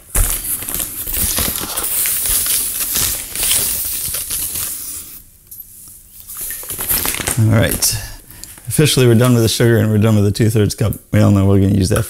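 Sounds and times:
paper bag crinkling: 0:00.0 - 0:05.2, 0:06.3 - 0:09.6.

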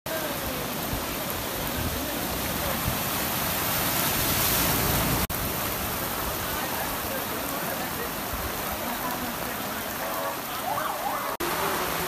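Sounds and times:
steady rain: 0:00.0 - 0:12.0
car tyres splashing through water: 0:00.1 - 0:12.0.

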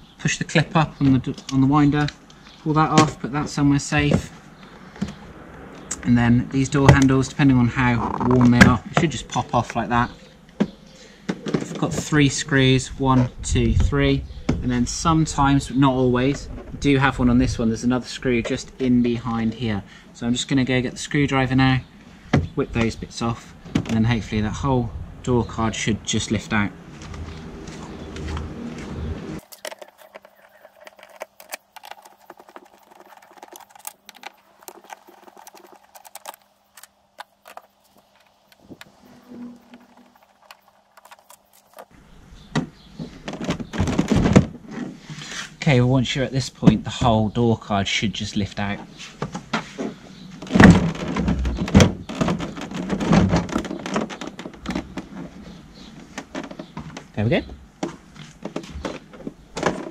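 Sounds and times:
plastic knocks and rattles: 0:10.6 - 0:12.1, 0:23.7 - 0:24.1, 0:29.4 - 0:44.9, 0:49.2 - 0:59.9.

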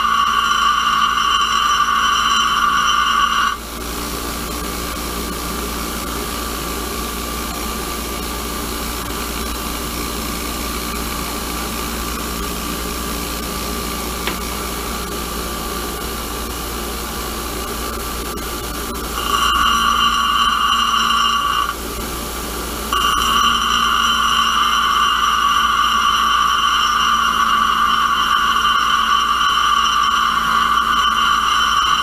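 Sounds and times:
bench grinder grinding metal: 0:00.0 - 0:21.8, 0:22.8 - 0:32.0
grinder running free hum: 0:00.0 - 0:32.0.

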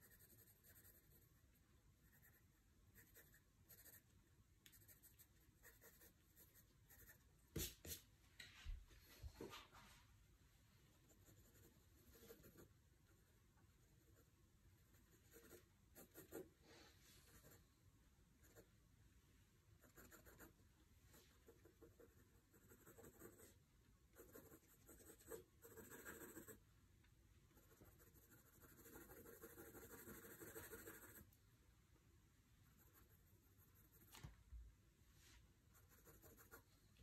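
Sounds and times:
pencil scratching on paper: 0:00.0 - 0:04.1, 0:04.7 - 0:08.0, 0:11.0 - 0:16.5, 0:17.2 - 0:17.6, 0:19.8 - 0:23.6, 0:24.2 - 0:26.6, 0:27.6 - 0:31.3, 0:32.7 - 0:34.2, 0:35.7 - 0:36.7.

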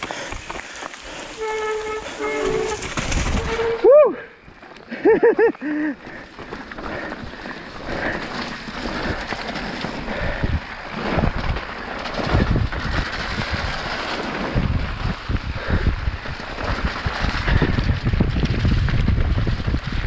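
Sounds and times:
bike jolting over bumps: 0:00.0 - 0:20.0
bike tyre and drivetrain rattle: 0:00.0 - 0:20.0
pitched wail: 0:01.4 - 0:04.4
wind rushing over microphone: 0:02.6 - 0:03.8, 0:08.0 - 0:20.0.

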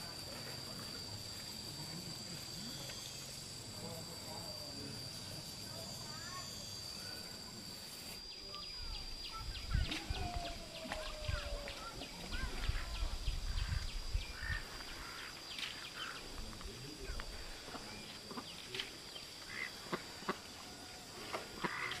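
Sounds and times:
high insect drone: 0:00.0 - 0:22.0
birds calling: 0:08.6 - 0:16.4, 0:17.0 - 0:22.0.

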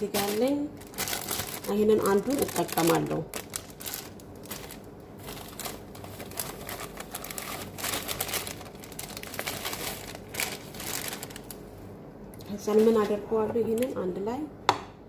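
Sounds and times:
plastic bag crinkling: 0:00.0 - 0:11.9.

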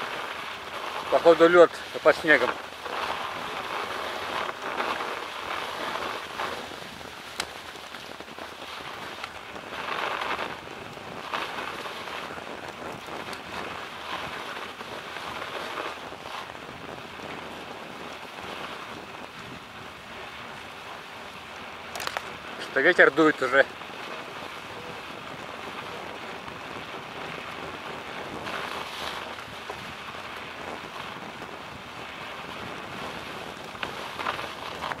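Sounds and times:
bike tyres crunching on snow: 0:00.0 - 0:35.0
bike sharp clicks: 0:02.0 - 0:16.5, 0:21.6 - 0:22.6.

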